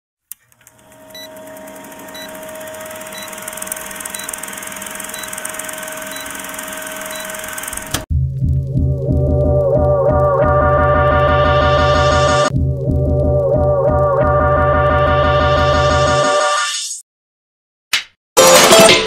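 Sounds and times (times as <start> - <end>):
film projector hiss: 1.0 - 8.0.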